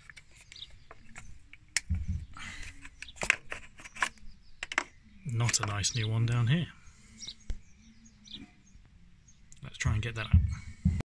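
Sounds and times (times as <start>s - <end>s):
hands handling plastic parts: 0.0s - 5.8s.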